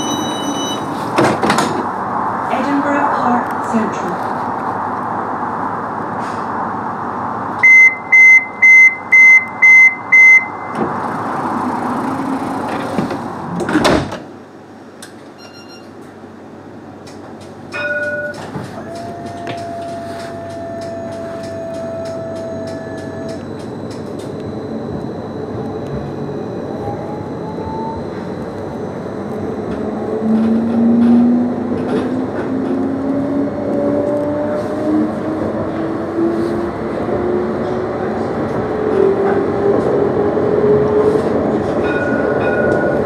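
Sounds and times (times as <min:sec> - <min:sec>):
short tone: 0:00.0 - 0:00.9, 0:15.4 - 0:16.0
electronic door warning beeps: 0:00.0 - 0:01.0, 0:07.6 - 0:10.8, 0:15.4 - 0:16.0
tram doors shutting thump: 0:00.0 - 0:02.0, 0:10.6 - 0:14.4, 0:29.6 - 0:33.0.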